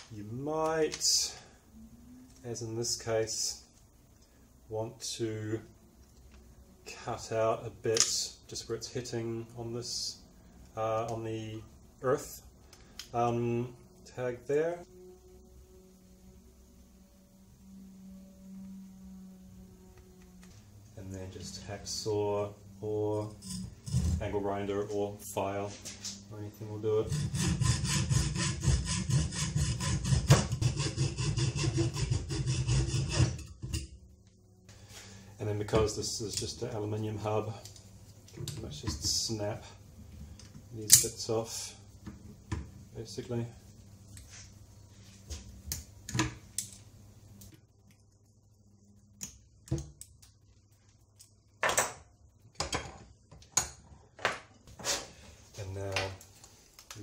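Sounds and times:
hacksaw cutting metal: 0:27.0 - 0:33.9.

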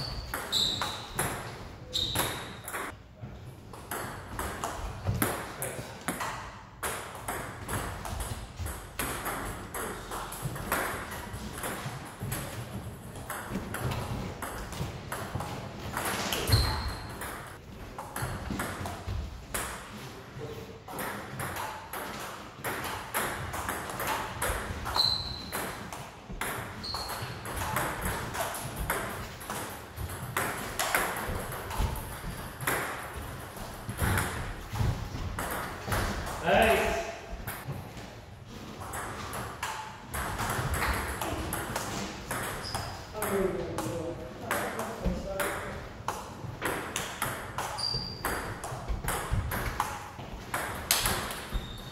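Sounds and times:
short high squeaks: 0:00.0 - 0:01.2, 0:01.9 - 0:02.6, 0:16.4 - 0:17.2, 0:24.9 - 0:25.6, 0:47.8 - 0:48.3, 0:51.6 - 0:51.9
table tennis balls clicking: 0:45.4 - 0:51.9.

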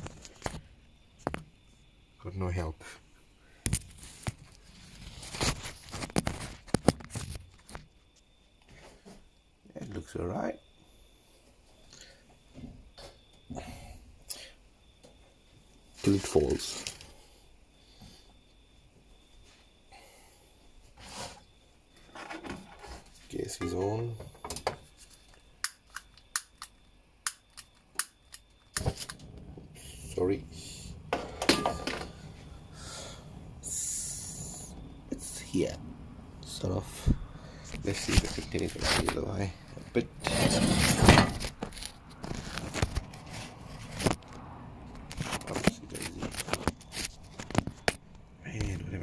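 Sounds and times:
phone scraping on foil: 0:40.2 - 0:44.2.

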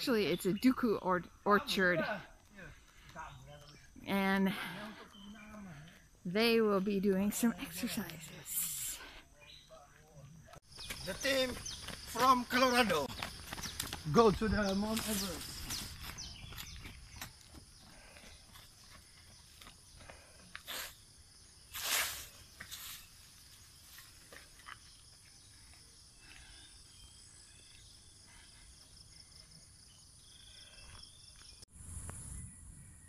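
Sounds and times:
footsteps: 0:10.0 - 0:20.6.

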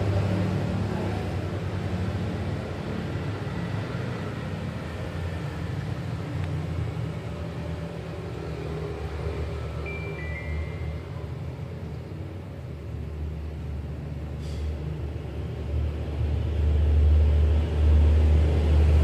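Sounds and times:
brief high tone: 0:09.8 - 0:11.3.

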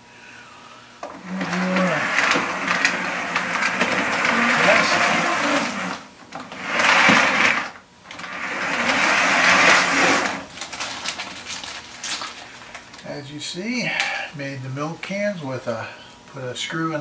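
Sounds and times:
toy electric train running: 0:01.2 - 0:06.0, 0:06.6 - 0:10.5.

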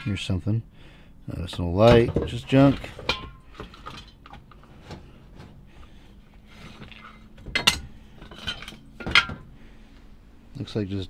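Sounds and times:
metal cans knocking and clinking: 0:01.8 - 0:04.6, 0:07.4 - 0:09.5.

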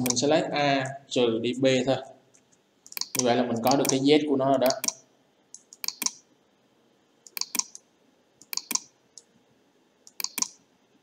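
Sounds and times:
computer mouse buttons clicking: 0:00.0 - 0:00.2, 0:02.3 - 0:06.2, 0:07.2 - 0:09.3, 0:10.0 - 0:10.6.

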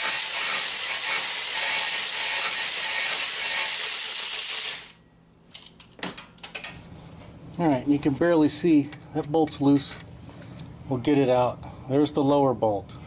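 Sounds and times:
electric ratchet running: 0:00.0 - 0:05.0.

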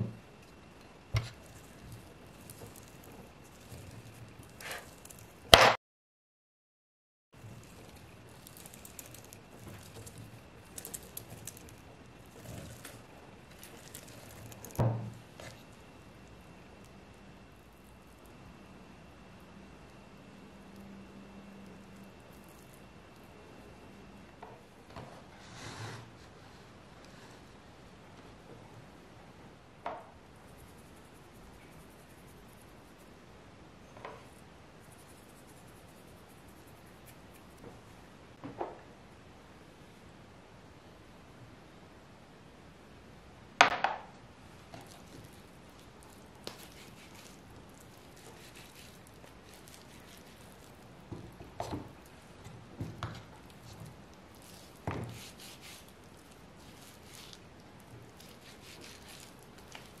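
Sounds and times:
salt grains rubbing: 0:07.4 - 0:15.7, 0:44.7 - 0:51.1, 0:53.4 - 1:00.0
soft scrape: 0:25.1 - 0:27.5.

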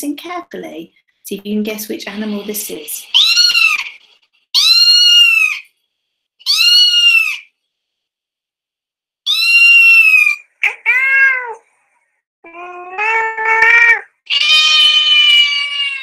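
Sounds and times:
cats yowling: 0:03.1 - 0:04.0, 0:04.6 - 0:05.6, 0:06.4 - 0:07.4, 0:09.3 - 0:11.6, 0:12.4 - 0:16.0.

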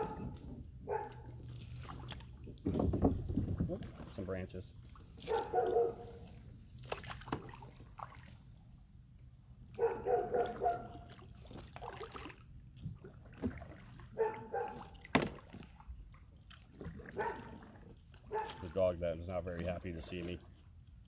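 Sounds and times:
dog barking: 0:00.0 - 0:01.3, 0:05.2 - 0:06.2, 0:09.8 - 0:11.1, 0:14.2 - 0:15.0, 0:17.1 - 0:17.6, 0:18.3 - 0:18.7.

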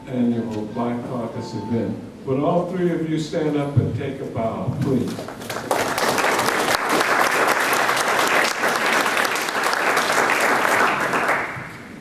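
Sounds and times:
audience applauding: 0:05.1 - 0:11.9.

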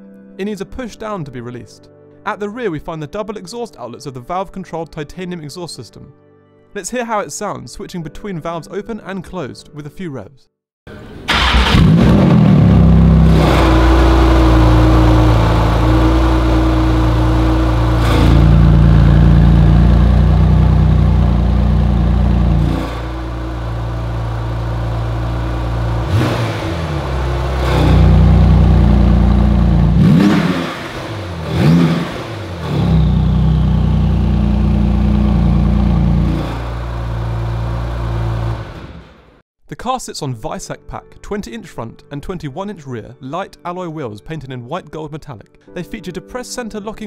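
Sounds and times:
car engine idling: 0:10.9 - 0:39.2
engine revving: 0:11.0 - 0:39.4.

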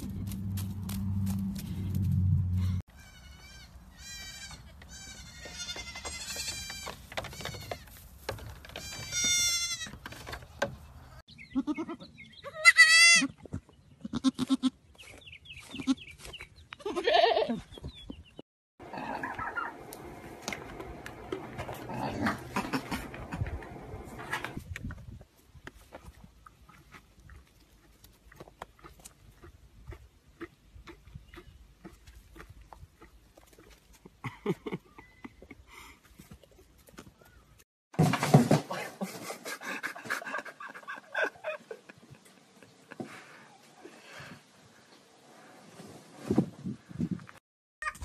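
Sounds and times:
goat kids bleating: 0:03.0 - 0:07.9, 0:08.8 - 0:09.9, 0:11.5 - 0:13.3, 0:14.0 - 0:14.8, 0:16.8 - 0:17.6.

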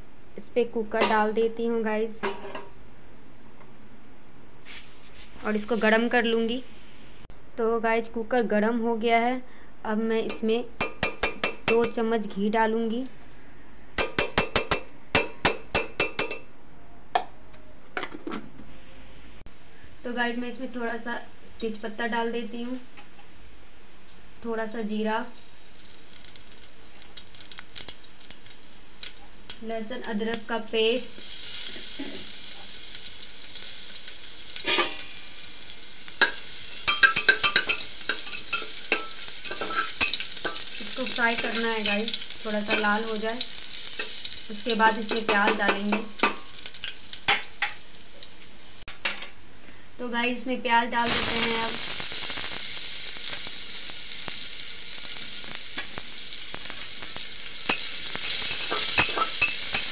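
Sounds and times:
paste sizzling in ghee: 0:25.2 - 0:48.8, 0:51.0 - 0:59.9
spoon clinking and scraping: 0:36.2 - 0:40.7, 0:58.6 - 0:59.9.

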